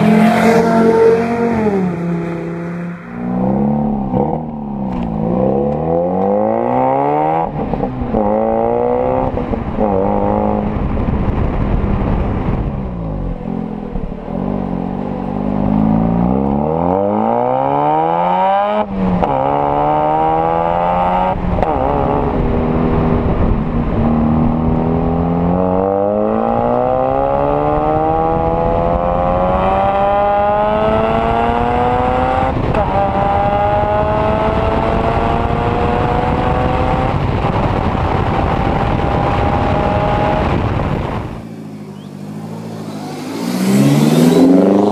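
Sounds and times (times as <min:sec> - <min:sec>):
rotary engine revving through gears: 0:42.8 - 0:44.9.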